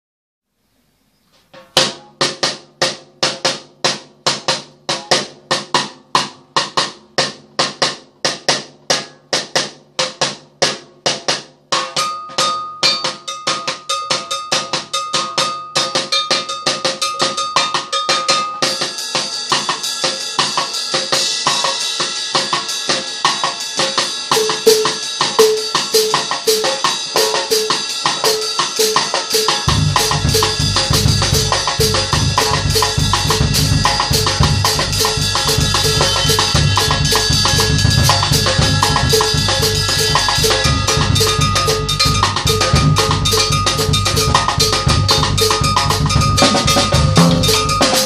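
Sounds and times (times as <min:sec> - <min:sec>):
drum kit playing: 0:01.5 - 0:48.0
cymbals crashing: 0:12.3 - 0:48.0.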